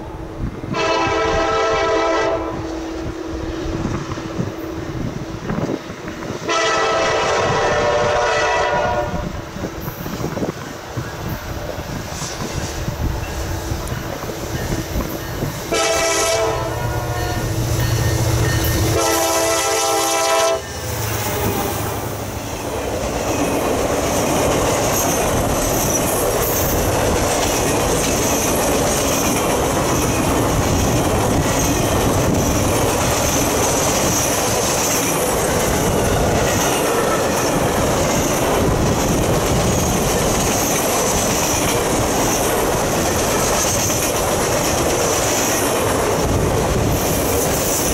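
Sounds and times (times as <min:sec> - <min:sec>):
train wheel clatter and rumble: 0:00.0 - 0:47.9
locomotive air horn blasts: 0:00.7 - 0:03.1, 0:06.5 - 0:09.3, 0:15.7 - 0:22.1.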